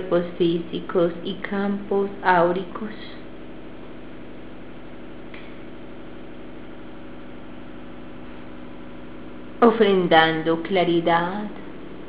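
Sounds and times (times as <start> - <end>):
steady hum with hiss: 0.0 - 12.0.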